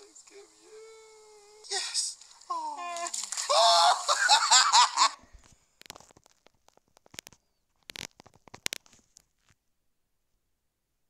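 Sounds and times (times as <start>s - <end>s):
faint clicks and taps: 5.4s - 9.6s.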